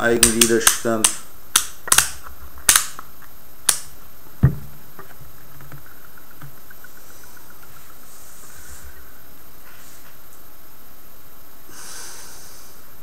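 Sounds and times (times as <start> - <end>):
dull knock: 4.4 - 4.8.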